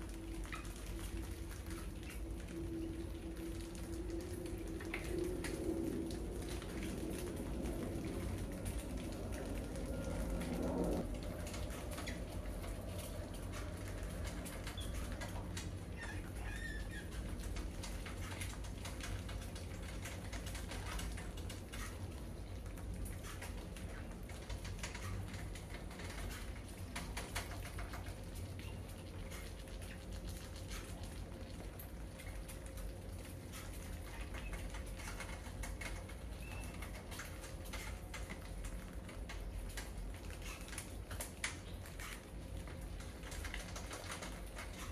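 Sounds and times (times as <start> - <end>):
mice squeaking: 14.7 - 17.4.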